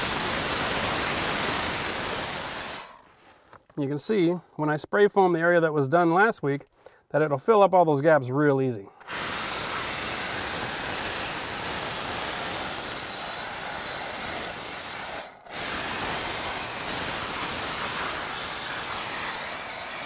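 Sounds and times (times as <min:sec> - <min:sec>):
spray foam gun hissing: 0:00.0 - 0:03.0, 0:09.0 - 0:20.0.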